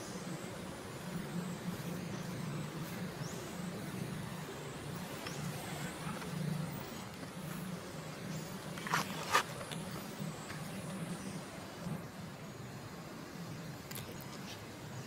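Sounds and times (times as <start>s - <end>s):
low motor hum: 0.0s - 15.0s.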